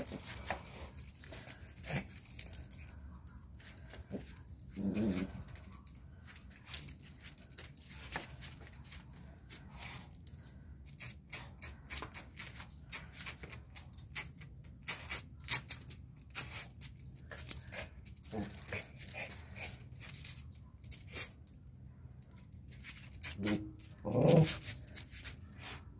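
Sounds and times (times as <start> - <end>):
dog claws clicking on concrete: 10.8 - 21.4, 22.4 - 25.8.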